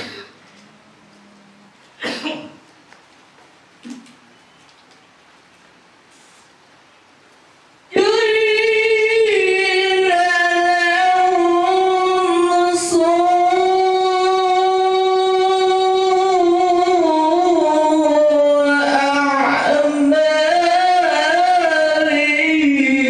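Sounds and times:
woman singing long held notes: 0:07.9 - 0:23.0.

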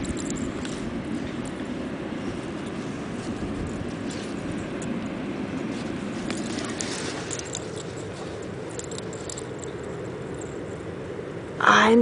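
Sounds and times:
rush of wind or surf: 0:00.0 - 0:08.6
dog paws digging in sand: 0:00.0 - 0:11.0.

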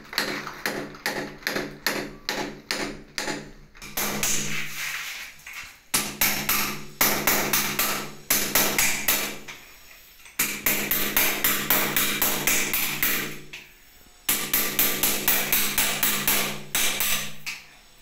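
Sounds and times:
hammer chipping tiles: 0:00.0 - 0:04.6, 0:05.9 - 0:09.4, 0:10.4 - 0:13.4, 0:14.3 - 0:17.4.

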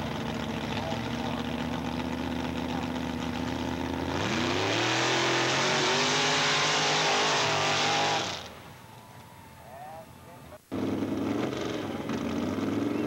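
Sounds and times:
race vehicle engines revving: 0:00.0 - 0:13.0.

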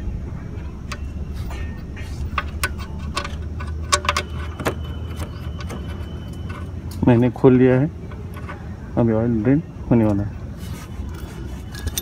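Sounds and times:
steady low hum: 0:00.0 - 0:12.0
metallic socket clicks and clinks: 0:11.7 - 0:12.0.

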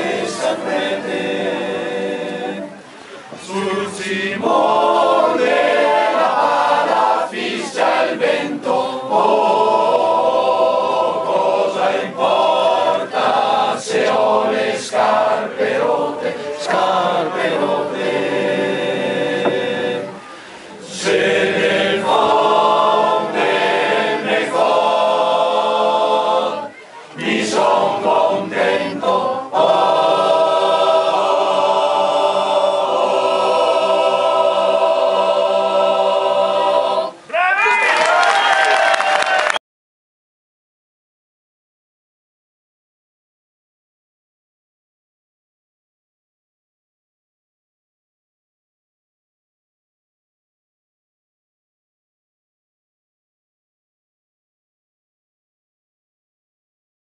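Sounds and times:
mixed choir singing a cappella: 0:00.0 - 0:37.3.

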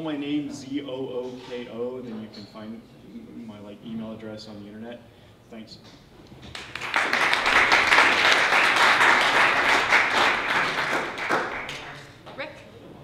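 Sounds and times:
audience applauding: 0:06.5 - 0:12.2.

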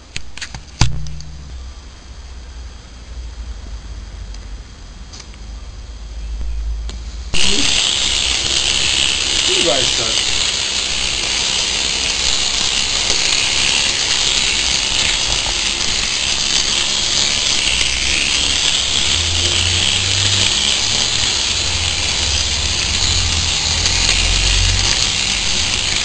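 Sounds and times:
model steam locomotive hiss and whir: 0:07.0 - 0:26.0.

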